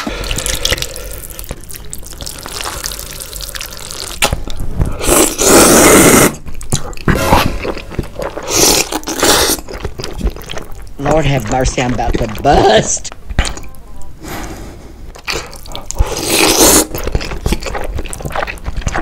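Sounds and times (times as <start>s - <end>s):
person slurping noodles: 5.0s - 10.5s, 14.3s - 17.8s.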